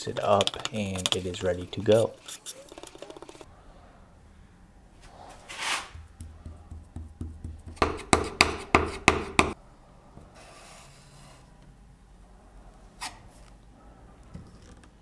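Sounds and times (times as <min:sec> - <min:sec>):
faint scrape: 0:05.0 - 0:06.0
putty knife swiping filler: 0:05.4 - 0:06.0.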